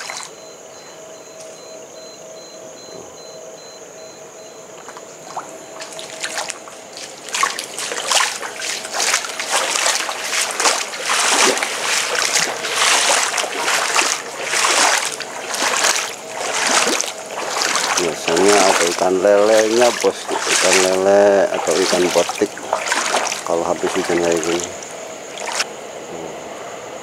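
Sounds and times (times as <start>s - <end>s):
wading through shallow water: 0.0s - 0.6s, 4.8s - 25.7s.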